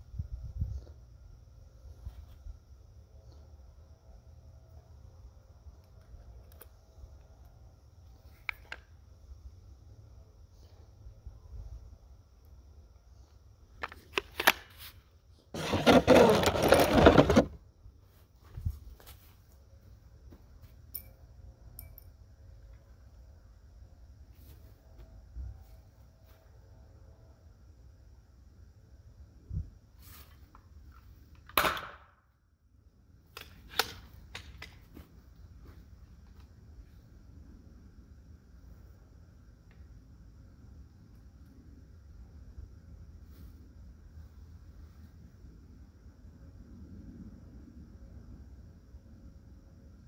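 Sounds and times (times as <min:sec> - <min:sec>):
nail gun firing crack: 0:31.5 - 0:32.1.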